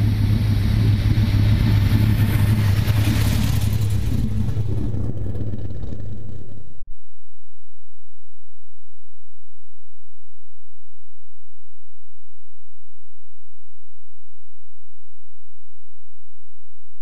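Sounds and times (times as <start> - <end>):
engine deep rumble: 0.0 - 6.9
low electronic hum: 0.0 - 9.2.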